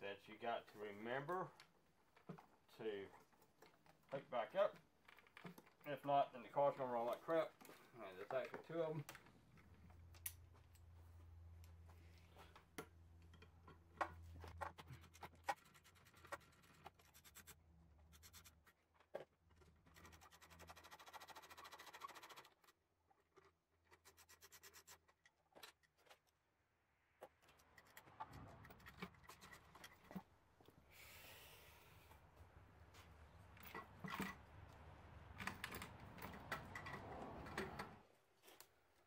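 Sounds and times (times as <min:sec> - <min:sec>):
tools clicking and tapping: 0:12.5 - 0:17.0, 0:33.5 - 0:38.0.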